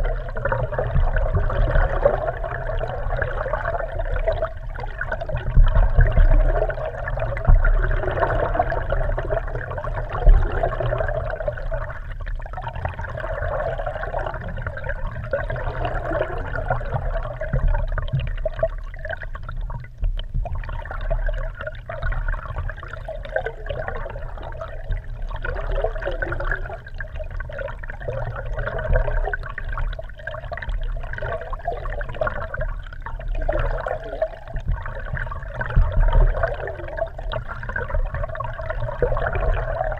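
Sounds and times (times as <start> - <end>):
steady low rumble: 0.0 - 30.2
muffled underwater water rushing: 0.0 - 39.9.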